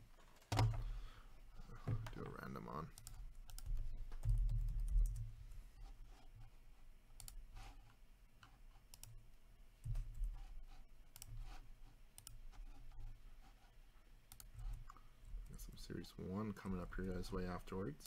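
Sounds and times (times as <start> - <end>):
computer mouse clicking: 2.9 - 5.3, 7.2 - 7.4, 8.4 - 9.2, 11.1 - 11.4, 12.2 - 12.4, 14.3 - 15.0.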